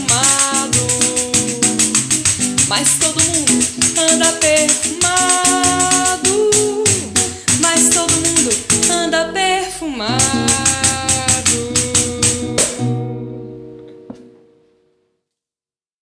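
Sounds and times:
hand percussion: 0:00.0 - 0:09.2, 0:10.1 - 0:13.0
classical guitar strumming: 0:00.0 - 0:15.0.

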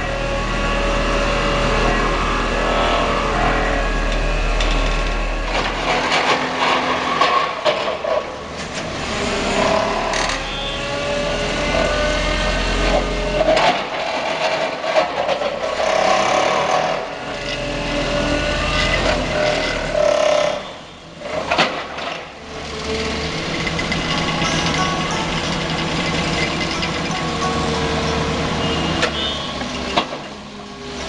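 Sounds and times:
vibratory hammer droning: 0:00.0 - 0:05.9
diesel engine running: 0:00.0 - 0:07.7, 0:22.4 - 0:31.0.

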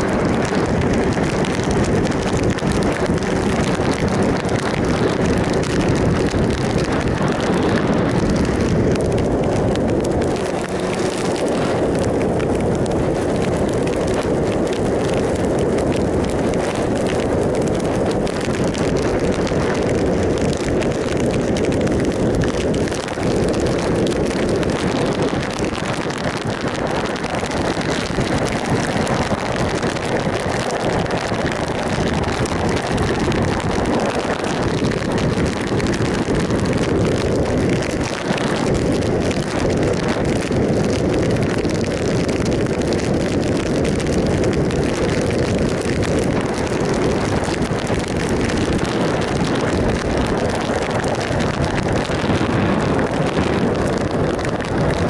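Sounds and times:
motorcycle engine running: 0:00.0 - 0:31.3
wind rush over microphone: 0:00.0 - 0:55.0.

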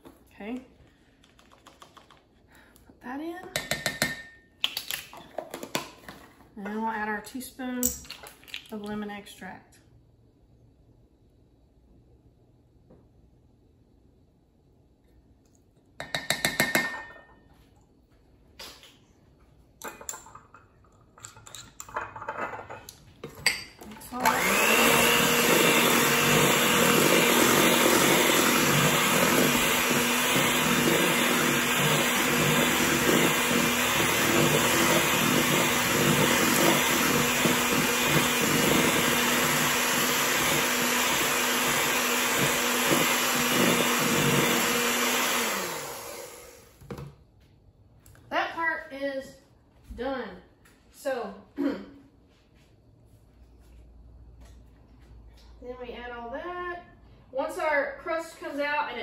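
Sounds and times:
electric hand mixer whirring: 0:24.1 - 0:46.8.

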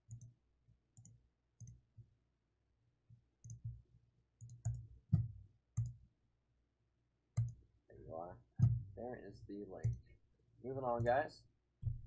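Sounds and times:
light clicks and soft knocks: 0:08.6 - 0:09.0, 0:09.8 - 0:10.2.

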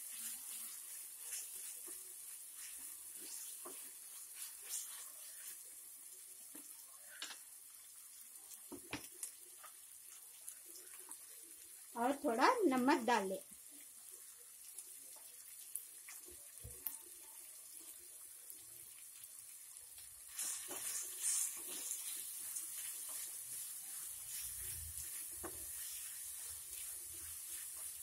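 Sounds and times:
spatula scraping pan: 0:00.0 - 0:05.6, 0:20.3 - 0:28.0
chicken sizzling in oil: 0:00.0 - 0:28.0.

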